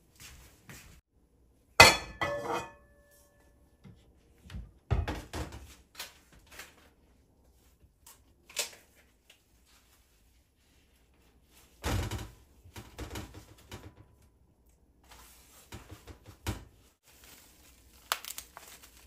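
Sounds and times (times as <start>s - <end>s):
dishes clinking: 1.8s - 3.1s.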